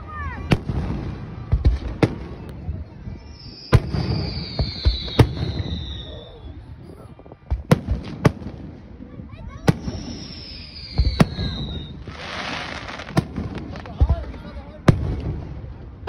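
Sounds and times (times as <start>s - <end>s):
high falling whistle: 3.1s - 7.0s, 9.9s - 12.1s.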